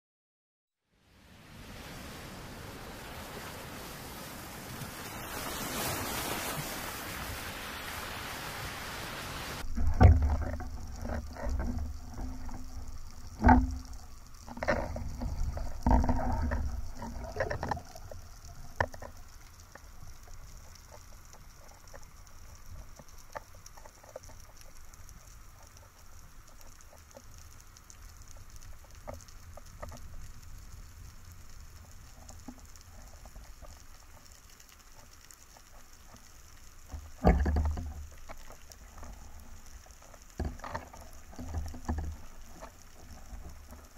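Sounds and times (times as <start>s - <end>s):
underwater thuds and knocks: 9.6s - 19.7s, 36.9s - 43.9s
faint crackling clicks: 9.6s - 43.9s.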